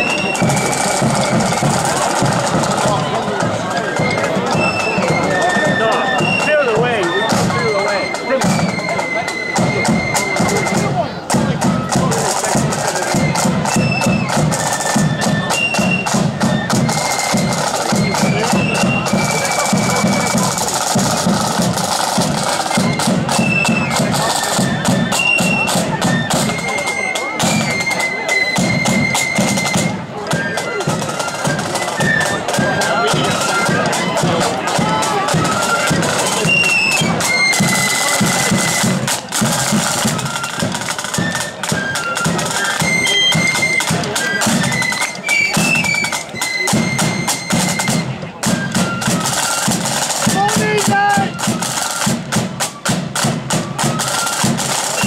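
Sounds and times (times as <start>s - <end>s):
steady low drum beat: 0.0s - 7.7s
shrill flute tune: 0.0s - 55.0s
side drum strokes: 0.0s - 55.0s
steady drum beat: 0.0s - 55.0s.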